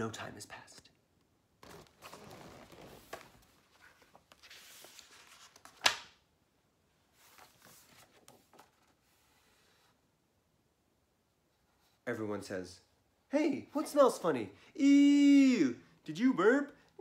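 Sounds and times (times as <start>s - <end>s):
book pages rustling: 1.6s - 6.2s, 7.1s - 9.5s.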